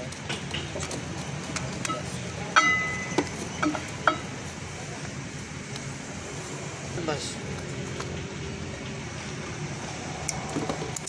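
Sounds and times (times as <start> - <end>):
metal battery plates clinking: 0.0 - 4.4.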